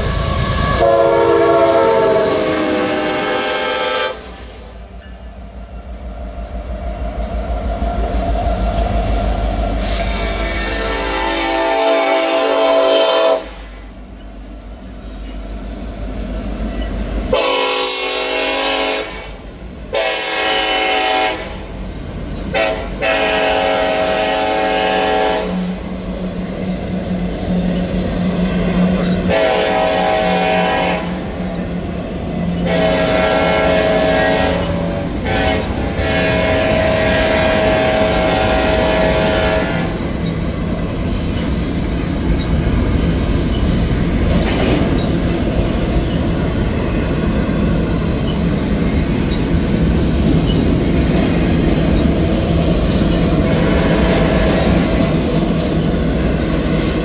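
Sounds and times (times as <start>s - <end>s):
train cars rumbling past: 0.0s - 57.0s
locomotive air horn blasts: 0.4s - 4.8s, 9.8s - 13.8s, 17.3s - 21.7s, 22.5s - 25.9s, 29.2s - 31.3s, 32.6s - 40.1s, 53.4s - 55.0s.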